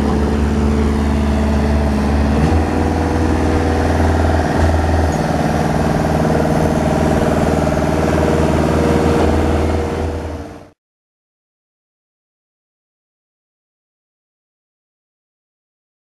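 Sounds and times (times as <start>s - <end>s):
forklift engine running: 0.0s - 10.8s.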